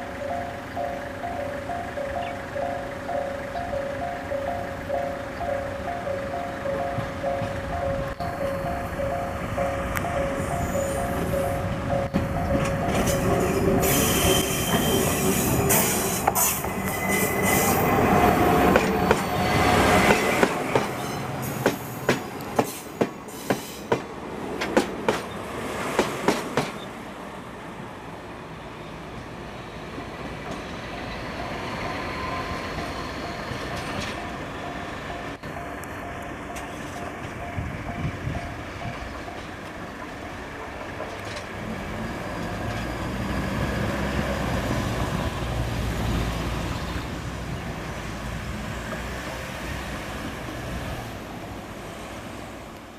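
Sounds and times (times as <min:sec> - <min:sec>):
diesel locomotive engine rumble: 0:00.0 - 0:52.9
train wheels clicking over rail joints: 0:03.6 - 0:26.9, 0:29.9 - 0:46.7.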